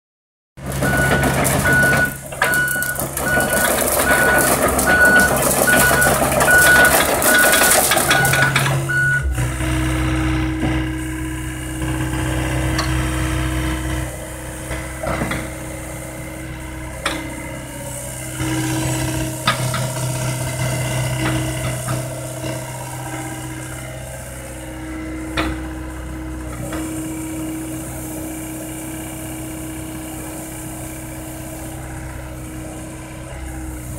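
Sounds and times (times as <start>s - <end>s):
diesel engine running: 0.6s - 33.9s
travel alarm beeps: 0.8s - 9.3s
hydraulic tone: 0.8s - 33.9s.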